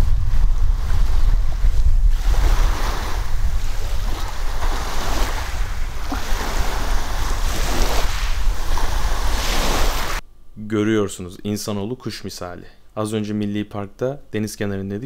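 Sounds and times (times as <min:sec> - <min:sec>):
sea waves washing on shore: 0:00.0 - 0:10.2
wind rumbling on microphone: 0:00.0 - 0:10.2.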